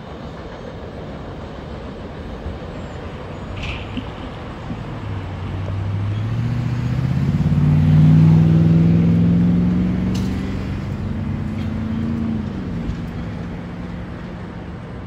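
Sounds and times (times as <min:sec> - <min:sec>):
vehicle engine accelerating: 0:05.3 - 0:14.9.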